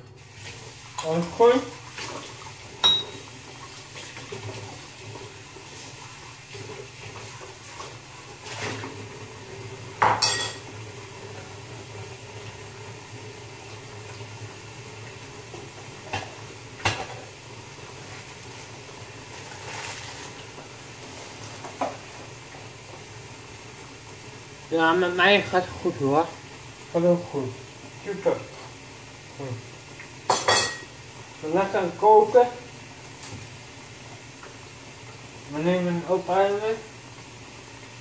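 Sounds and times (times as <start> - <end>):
pots and cutlery clanking: 2.8 - 3.3, 10.0 - 10.8, 16.1 - 17.3, 30.3 - 30.9.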